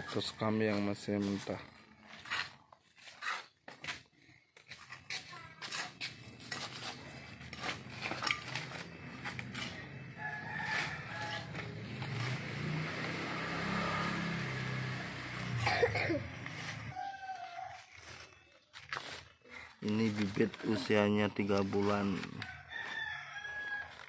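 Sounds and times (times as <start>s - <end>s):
rooster crowing: 10.1s - 11.8s, 16.9s - 18.2s, 22.4s - 24.0s
soil scraping and pouring: 16.4s - 24.0s.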